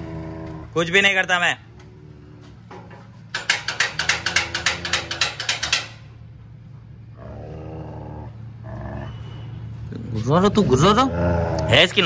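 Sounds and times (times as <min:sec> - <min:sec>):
metal chain rattling against gate: 0:02.8 - 0:06.3
dog growling: 0:07.2 - 0:09.2, 0:11.0 - 0:11.8.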